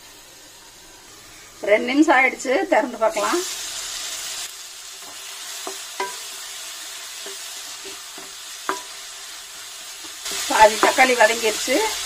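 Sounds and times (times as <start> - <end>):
masala sizzling in oil: 0.0 - 12.0
spatula stirring: 5.0 - 6.5.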